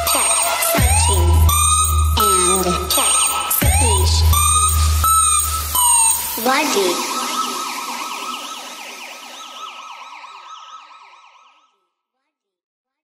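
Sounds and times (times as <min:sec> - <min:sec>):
police siren yelp: 0:00.0 - 0:11.8.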